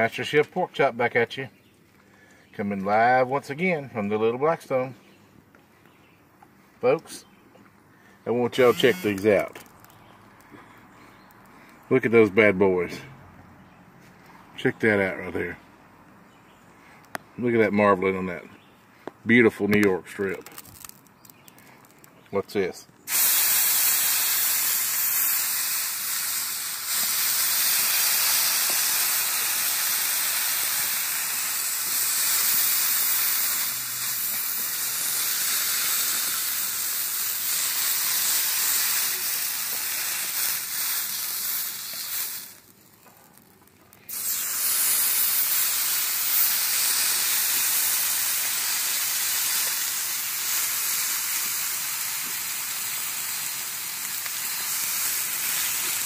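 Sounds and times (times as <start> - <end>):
steak sizzling on griddle: 8.7 - 9.1, 23.1 - 56.0.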